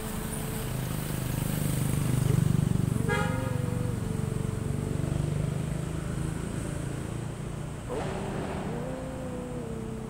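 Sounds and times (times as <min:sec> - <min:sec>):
vehicle engine rumble passing: 0:00.0 - 0:10.0
short horn toot: 0:03.1 - 0:03.7.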